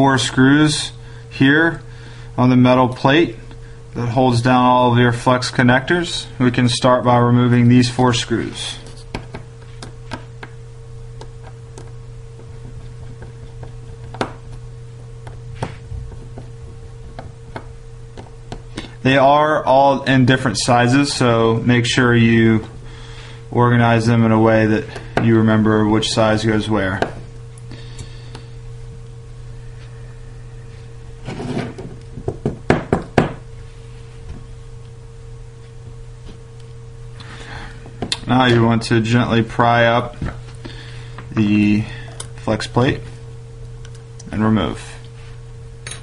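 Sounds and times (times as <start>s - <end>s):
steady low hum: 0.0s - 46.0s
phone sliding on wood: 31.2s - 31.9s.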